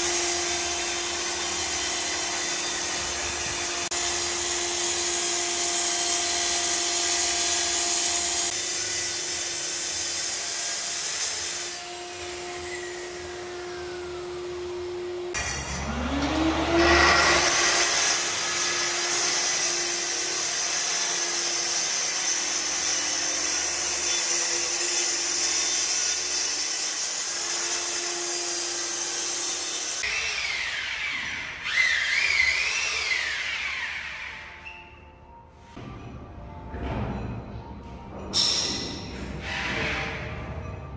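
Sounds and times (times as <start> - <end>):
circular saw cutting plywood: 0.0 - 34.6.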